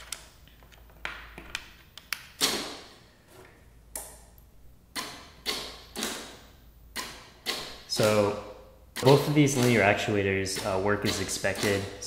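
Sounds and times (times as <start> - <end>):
sharp relay clicks: 4.9 - 12.0
linear actuators running: 5.0 - 12.0.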